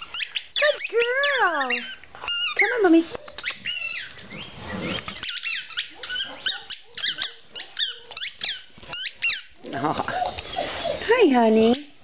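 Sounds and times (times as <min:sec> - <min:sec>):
squeaky toy squeaks: 0:00.0 - 0:09.5.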